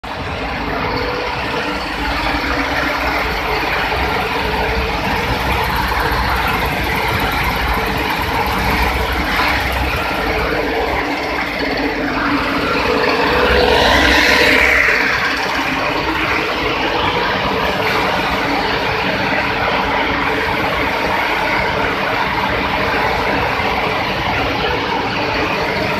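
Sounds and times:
cleaning machine humming: 0.0s - 25.9s.

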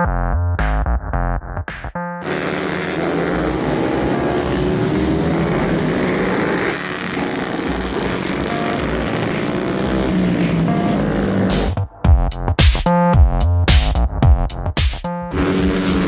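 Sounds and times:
racing motorcycles buzzing at high revs: 2.2s - 11.8s, 15.3s - 16.0s.

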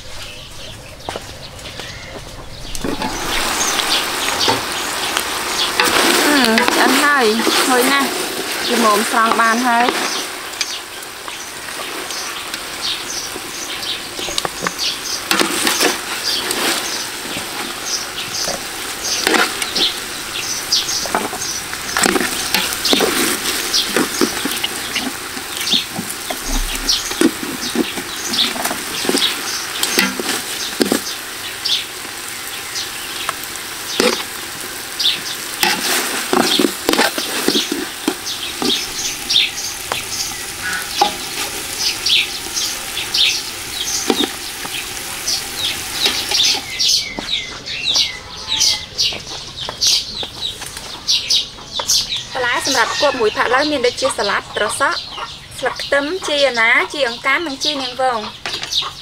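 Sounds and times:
sauce sizzling and popping: 2.4s - 47.9s.

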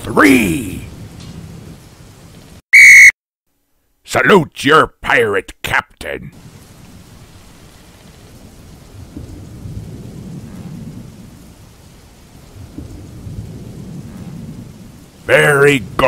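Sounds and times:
low rolling thunder: 0.0s - 2.6s, 6.4s - 16.0s
steady rain: 0.0s - 2.6s, 3.6s - 16.0s.

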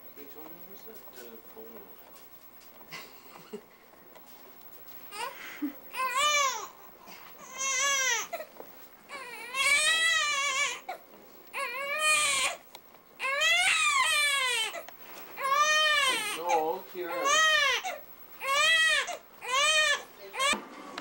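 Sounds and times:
newborn baby crying: 5.1s - 8.5s, 9.1s - 12.6s, 13.2s - 20.6s.

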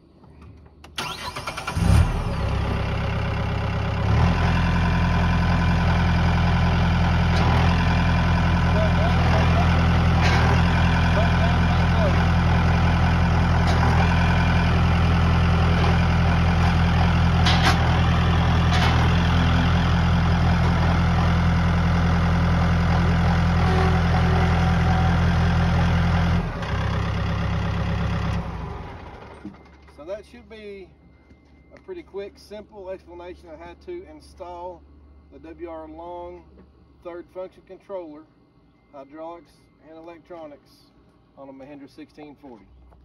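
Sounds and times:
tractor diesel engine running: 0.9s - 30.4s.

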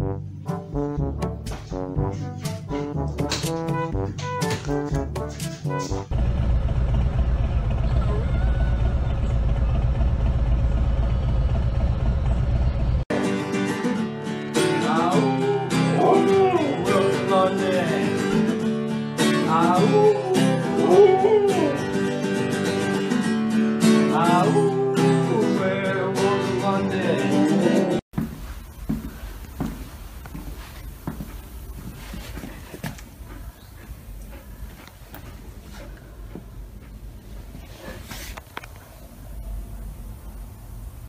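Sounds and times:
motorcycle engine rumble: 6.1s - 13.0s
person singing: 13.1s - 22.2s, 24.0s - 28.0s
acoustic guitar strumming: 13.1s - 28.0s.

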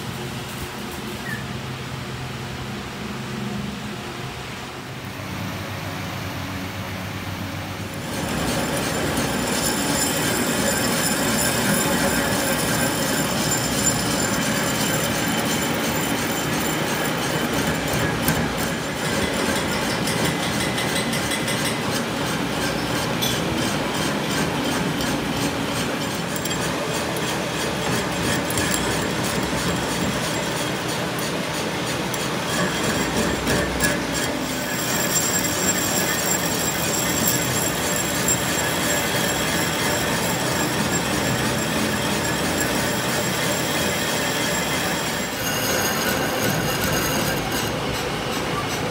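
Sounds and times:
metal lathe cutting steel: 7.8s - 48.9s
high ringing tones: 8.1s - 30.5s, 32.5s - 48.7s.

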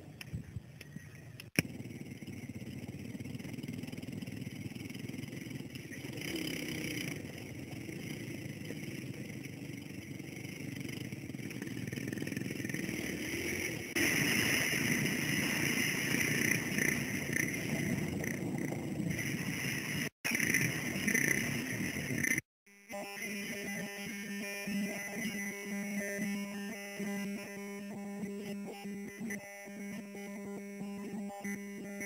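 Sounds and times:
dirt bike engine running: 1.2s - 22.5s.

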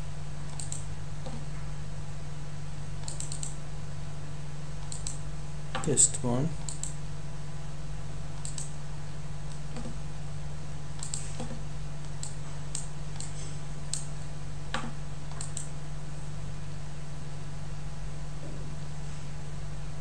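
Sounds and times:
low electrical hum: 0.0s - 20.0s
mouse and keyboard clicks: 3.0s - 3.6s, 8.4s - 8.7s, 11.0s - 14.1s, 14.8s - 15.7s.

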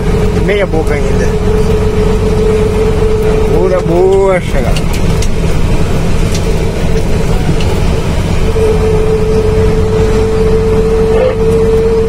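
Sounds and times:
steady high whine: 0.0s - 12.0s
truck engine and road rumble: 0.0s - 12.0s.

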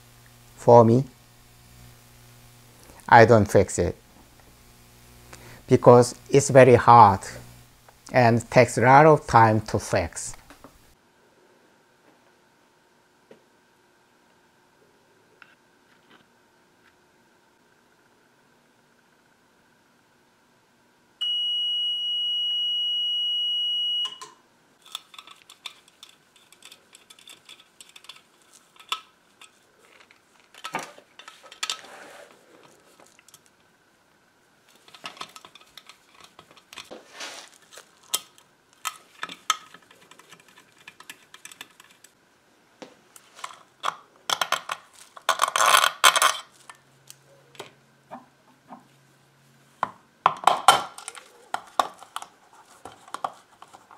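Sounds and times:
high-tone alarm: 21.2s - 24.2s
screwdriver scraping metal: 24.8s - 29.6s, 34.8s - 36.9s.

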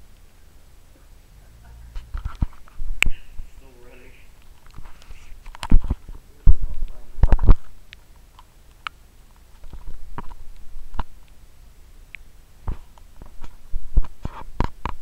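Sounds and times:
rustling: 0.9s - 11.4s.

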